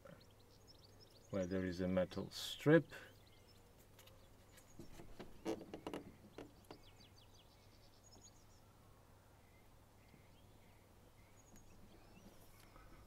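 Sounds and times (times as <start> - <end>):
faint bird chirps: 0.0 - 13.0
soft plastic clicks and rustles: 3.8 - 6.9.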